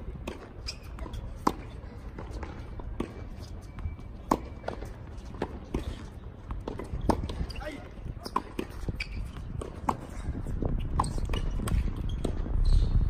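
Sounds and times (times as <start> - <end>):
racket hitting tennis ball: 0.1 - 3.5, 4.2 - 7.6, 8.2 - 12.6
tennis ball bouncing on hard court: 0.1 - 7.6, 8.2 - 12.9.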